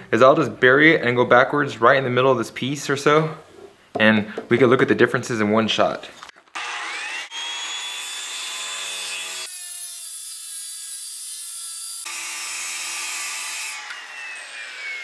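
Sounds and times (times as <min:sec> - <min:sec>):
circular saw whining: 0:06.5 - 0:15.0.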